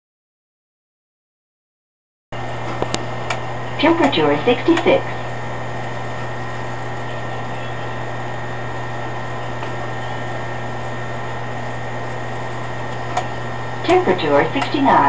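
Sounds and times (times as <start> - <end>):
faint high whine: 2.4 - 15.0
machine motor hum: 2.4 - 15.0.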